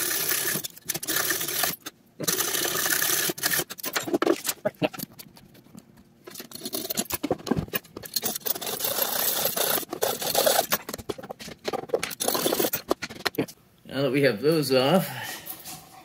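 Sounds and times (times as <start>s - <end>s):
hand saw cutting plastic: 0.0s - 4.6s, 6.3s - 13.4s.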